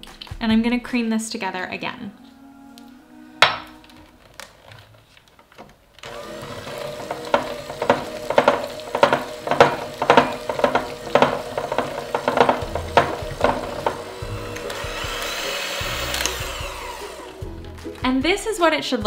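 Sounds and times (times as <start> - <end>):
electric hand mixer whirring: 6.0 - 17.8
beaters scraping through mixture: 6.0 - 18.0.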